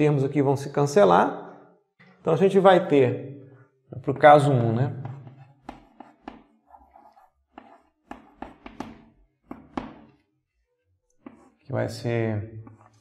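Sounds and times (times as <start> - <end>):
chalk tapping and scratching: 5.0 - 13.0.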